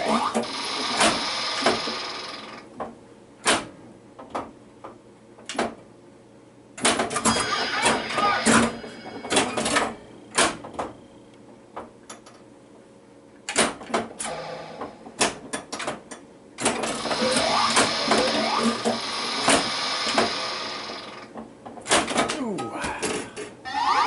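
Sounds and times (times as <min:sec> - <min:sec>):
pinball clacks and solenoids firing: 0:00.0 - 0:02.7, 0:03.4 - 0:03.7, 0:13.5 - 0:22.3
electronic sound effects sweeping tones: 0:23.7 - 0:24.0.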